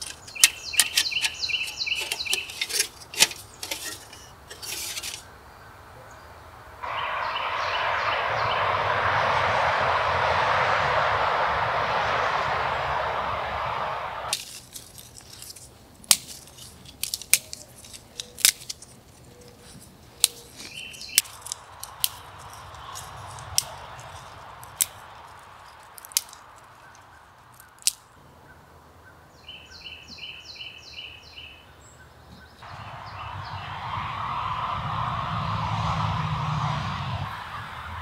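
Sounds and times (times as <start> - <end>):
bird chirping: 0.0 - 4.5, 5.2 - 9.0, 19.2 - 21.5, 26.4 - 33.8
steady rushing noise: 6.8 - 14.8, 20.7 - 28.0, 32.6 - 38.0
dry twigs snapping: 14.3 - 28.1.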